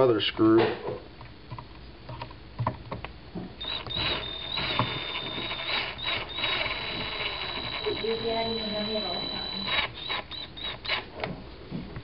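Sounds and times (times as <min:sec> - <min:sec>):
screw squealing: 0:03.6 - 0:11.1.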